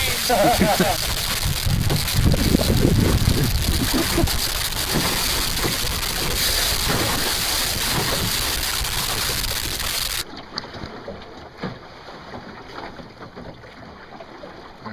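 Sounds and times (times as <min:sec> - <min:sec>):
water rushing past hull: 0:00.0 - 0:14.9
water splashing: 0:00.0 - 0:14.9
wind buffeting microphone: 0:00.6 - 0:09.3.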